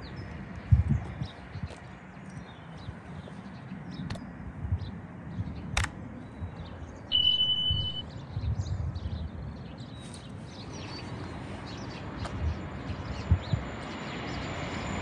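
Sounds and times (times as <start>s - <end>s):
birds chirping: 0.0s - 14.8s
wind gusting on microphone: 0.0s - 15.0s
sharp click: 5.8s - 6.0s
short high beep: 7.1s - 8.0s.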